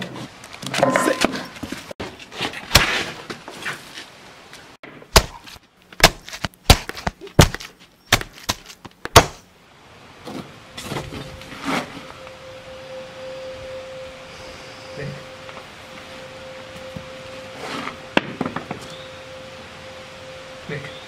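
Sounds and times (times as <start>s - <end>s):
high ringing tone: 10.6s - 21.0s.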